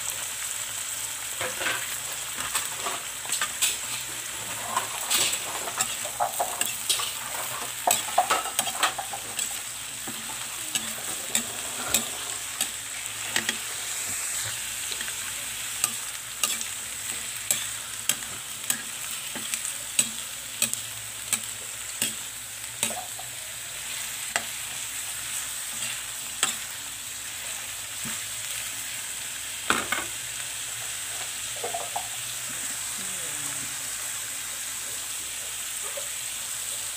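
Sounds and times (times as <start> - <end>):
vegetables sizzling in a hot pan: 0.0 - 36.9
utensil scraping against pan: 1.4 - 23.3.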